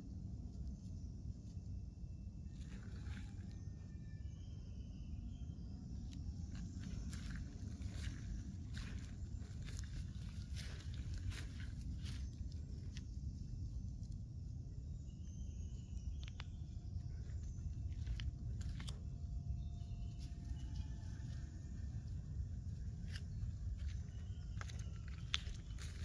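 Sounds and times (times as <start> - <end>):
footsteps in dry grass: 6.4 - 13.8, 17.2 - 19.2, 19.8 - 26.0.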